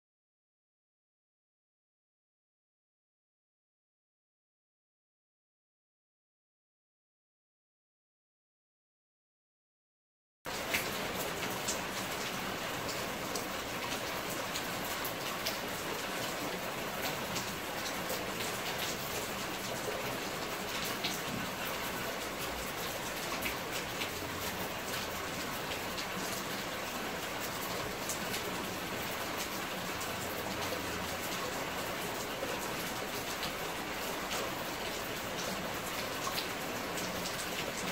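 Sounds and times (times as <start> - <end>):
steady rain: 10.5 - 37.9.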